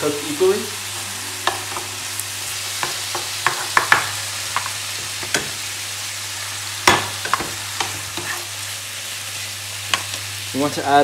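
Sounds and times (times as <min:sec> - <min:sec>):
meat sizzling in a frying pan: 0:00.0 - 0:11.0
spatula clicking and scraping pan: 0:06.8 - 0:08.5.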